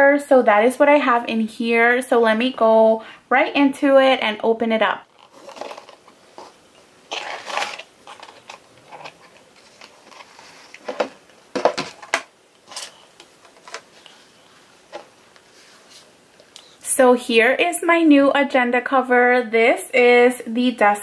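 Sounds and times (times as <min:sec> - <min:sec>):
cloth bag rustling: 0:05.1 - 0:12.1
box knocks and clicks: 0:10.9 - 0:12.3.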